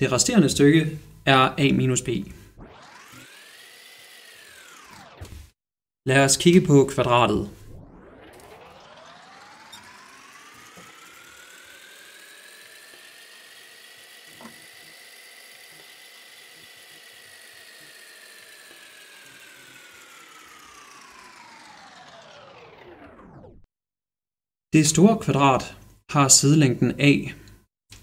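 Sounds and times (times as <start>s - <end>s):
electronic whirring tone: 2.2s - 5.6s, 6.8s - 23.7s.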